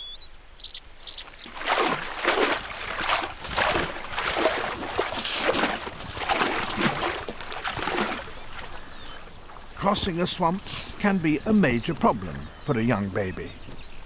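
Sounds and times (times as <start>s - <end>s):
elephants sloshing through water: 1.2s - 11.3s.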